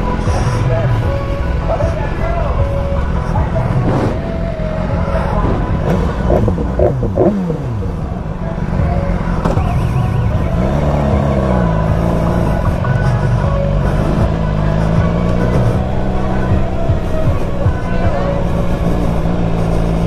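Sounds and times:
motorcycle engine at low speed: 0.0s - 20.0s.

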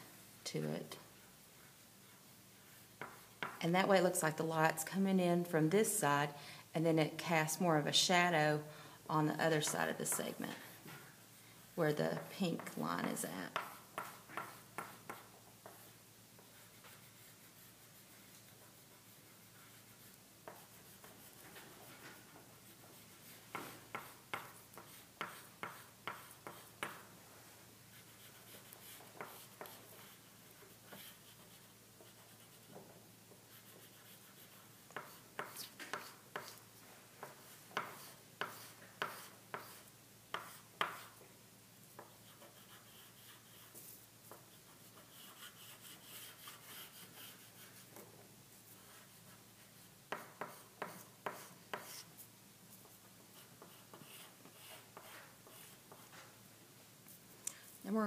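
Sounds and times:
chalk scratching on paper: 12.2s - 27.1s, 27.9s - 32.8s, 33.4s - 41.2s, 42.0s - 48.0s, 48.6s - 56.3s.

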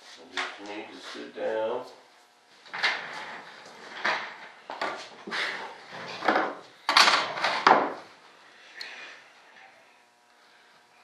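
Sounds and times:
tools clattering on workbench: 6.1s - 8.0s.

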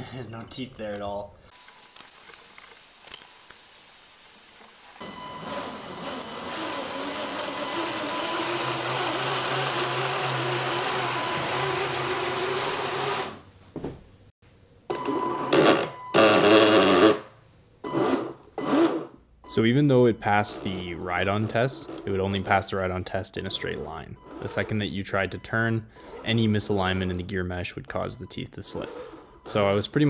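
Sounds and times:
electric motor and gears whining: 1.5s - 13.4s, 20.3s - 24.9s, 28.6s - 29.8s.

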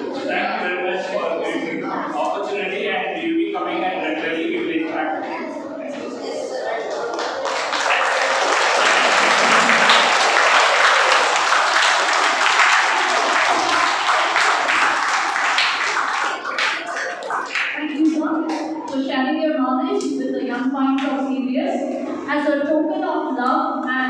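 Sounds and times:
children applauding: 6.6s - 19.0s.

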